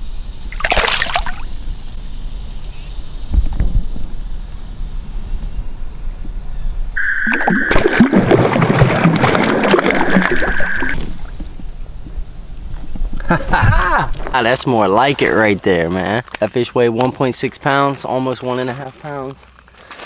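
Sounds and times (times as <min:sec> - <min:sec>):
crickets chirring: 0:00.0 - 0:07.8, 0:09.9 - 0:20.0
water splashing and gurgling: 0:00.5 - 0:01.5, 0:07.2 - 0:11.0.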